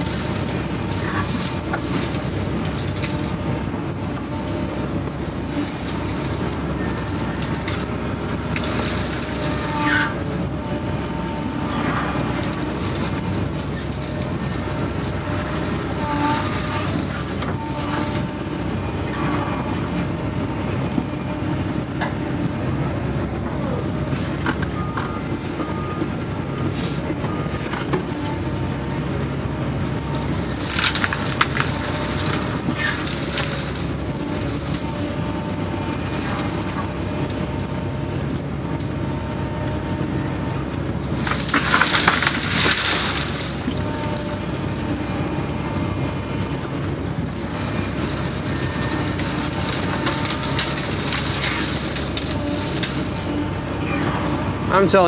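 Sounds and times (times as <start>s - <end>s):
excavator diesel engine running: 0.0s - 55.0s
bucket crunching through brush: 5.7s - 10.3s, 29.8s - 37.6s, 40.8s - 46.1s, 47.3s - 55.0s.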